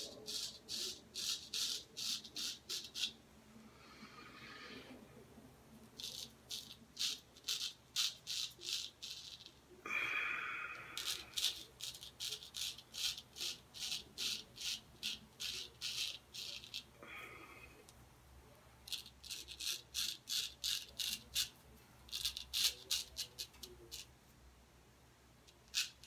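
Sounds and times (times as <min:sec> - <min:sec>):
razor scraping stubble: 0:10.8 - 0:16.9, 0:18.9 - 0:24.1.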